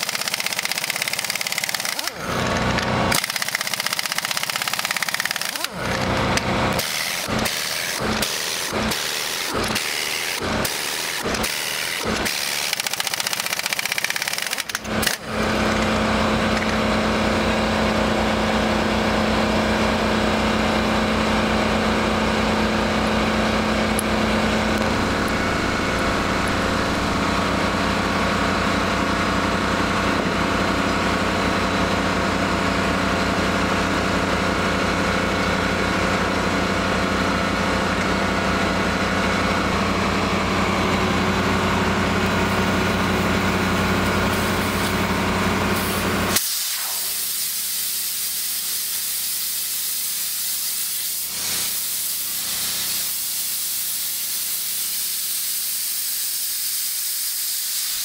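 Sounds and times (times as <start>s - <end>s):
engine running: 0.0s - 56.0s
compressed air hissing: 45.7s - 58.0s.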